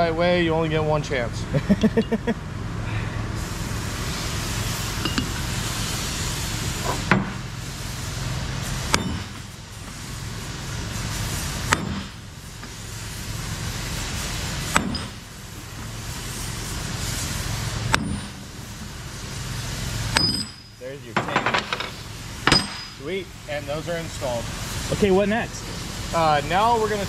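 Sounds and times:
workshop noise: 0.0s - 27.0s
sledgehammer striking steel plate: 8.9s - 9.4s, 11.7s - 12.2s, 14.7s - 15.2s, 17.9s - 18.4s, 20.1s - 20.7s, 22.5s - 23.0s.

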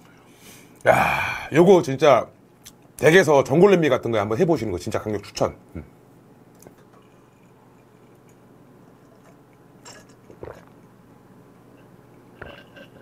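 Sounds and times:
man gulping a drink: 7.0s - 11.0s, 12.4s - 13.0s.

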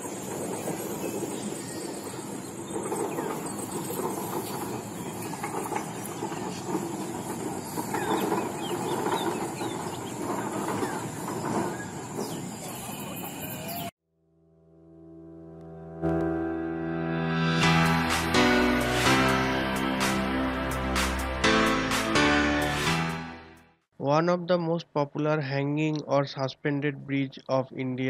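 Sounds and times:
birds calling: 0.0s - 13.9s.

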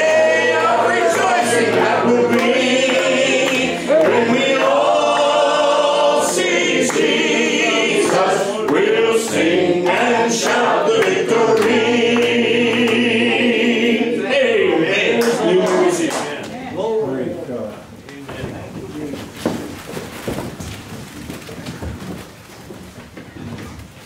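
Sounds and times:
congregation singing a hymn: 0.0s - 16.4s.

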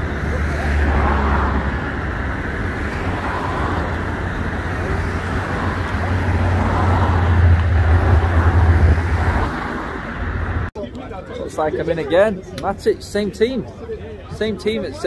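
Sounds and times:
car passing close by: 0.0s - 10.7s
road traffic: 0.0s - 15.0s.

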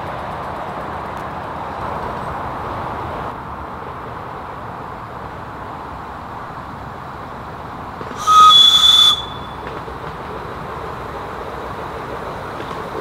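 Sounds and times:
steam locomotive whistle blast: 8.1s - 9.7s.

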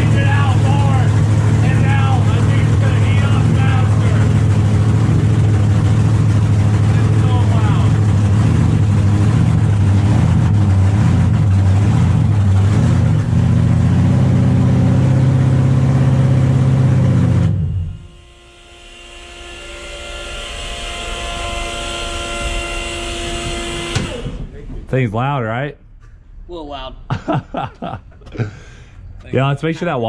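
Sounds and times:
car engine running loud: 0.0s - 24.7s
steady multi-tone whine: 17.0s - 24.6s.

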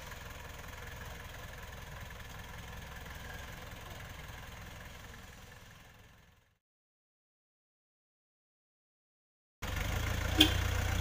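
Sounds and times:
jeep engine running low revs: 0.0s - 6.5s, 9.6s - 11.0s.

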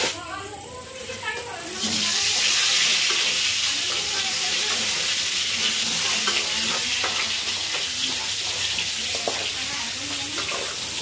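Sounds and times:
potatoes sizzling in hot oil: 1.6s - 11.0s
spatula scraping and tapping pan: 2.3s - 9.6s.

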